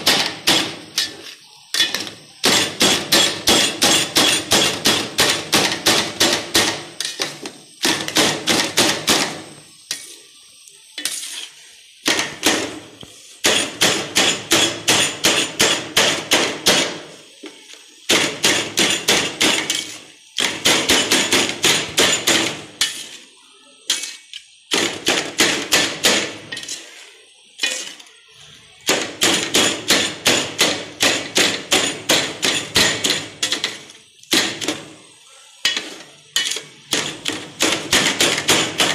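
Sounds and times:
knife chopping in a steel pan: 0:00.0 - 0:09.3, 0:13.4 - 0:17.0, 0:18.1 - 0:23.2, 0:28.9 - 0:34.8, 0:35.6 - 0:38.9.

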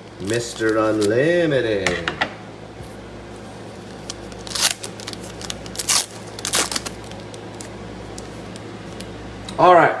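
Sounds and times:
foil wrapper crinkling: 0:00.1 - 0:01.4, 0:03.7 - 0:08.6.

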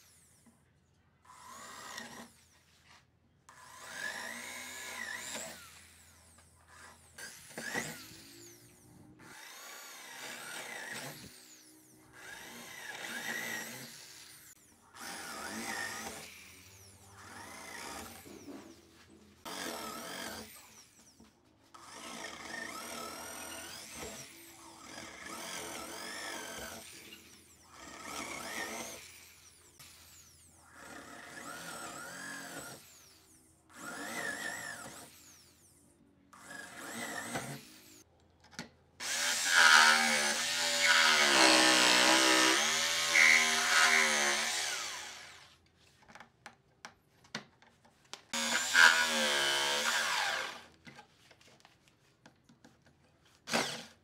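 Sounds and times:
power drill working wood: 0:00.0 - 0:00.5, 0:01.2 - 0:02.6, 0:03.5 - 0:38.1, 0:39.0 - 0:45.6, 0:48.3 - 0:50.8, 0:53.4 - 0:54.0.

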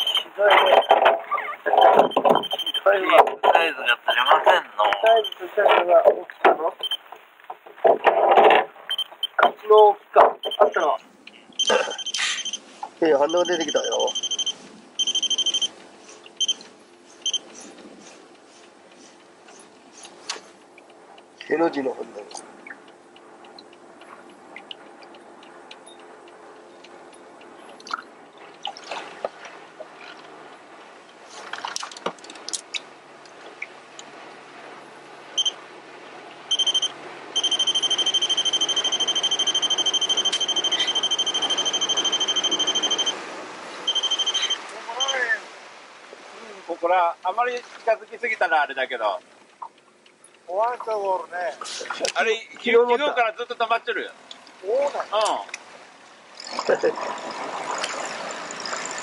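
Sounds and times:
electronic beeping: 0:00.0 - 0:07.1, 0:08.9 - 0:12.7, 0:13.3 - 0:15.7, 0:16.3 - 0:16.6, 0:17.2 - 0:17.5, 0:35.4 - 0:35.6, 0:36.5 - 0:43.2, 0:43.8 - 0:45.3
faint wash of noise: 0:08.7 - 0:49.5.

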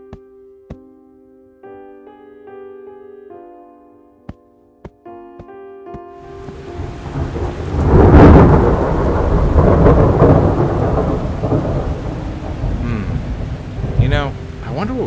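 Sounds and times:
rain falling: 0:06.2 - 0:15.0
thunder rumbling: 0:06.3 - 0:15.0.

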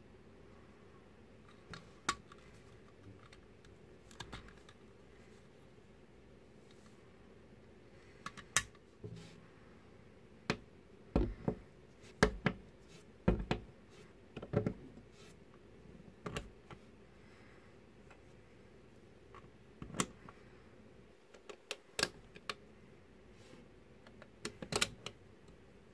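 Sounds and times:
plastic parts clicking together: 0:01.5 - 0:04.9, 0:08.2 - 0:08.8, 0:24.1 - 0:25.2.

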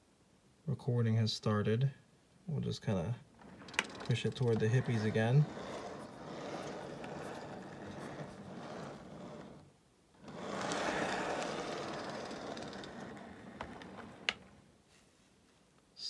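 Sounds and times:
model train wheels rolling on track: 0:03.4 - 0:14.6.

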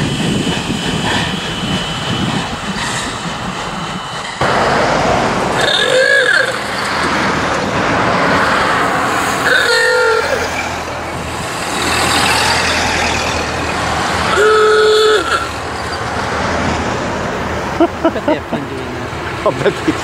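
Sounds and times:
cars driving past: 0:04.3 - 0:20.0.

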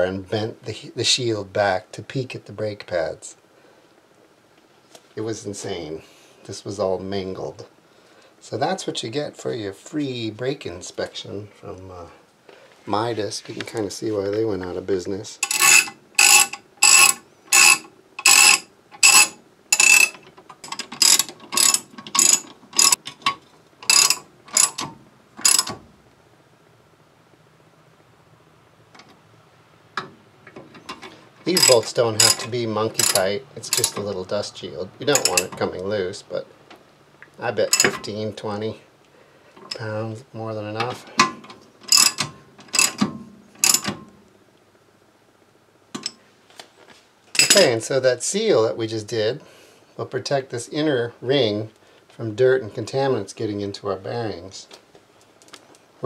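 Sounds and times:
ratchet wrench clicking: 0:15.4 - 0:23.0, 0:23.8 - 0:25.8, 0:31.0 - 0:34.0, 0:35.2 - 0:35.6, 0:41.9 - 0:43.0, 0:43.6 - 0:44.0.

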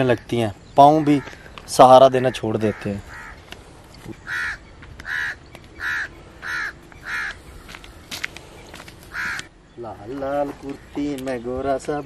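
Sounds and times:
crow cawing: 0:00.9 - 0:07.9, 0:08.8 - 0:09.6.

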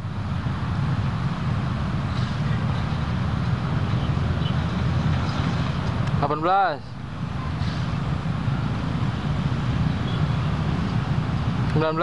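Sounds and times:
outdoor background rumble: 0:00.0 - 0:12.0.

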